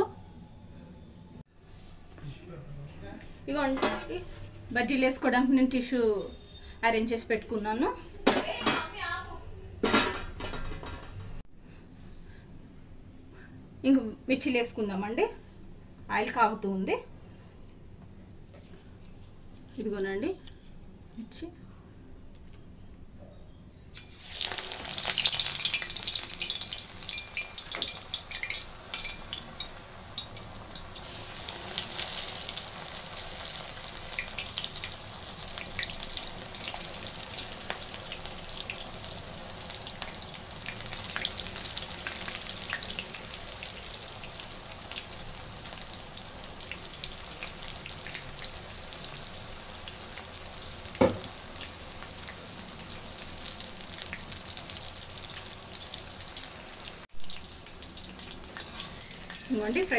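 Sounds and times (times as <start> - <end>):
food sizzling in hot oil: 24.0 - 59.9.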